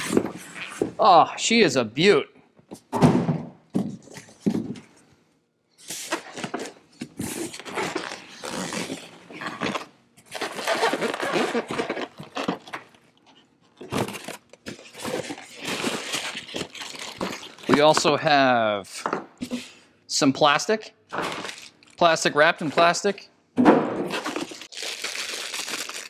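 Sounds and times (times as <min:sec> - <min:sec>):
plastic wrap crinkling: 0:13.7 - 0:18.2, 0:21.2 - 0:23.0, 0:24.2 - 0:26.0.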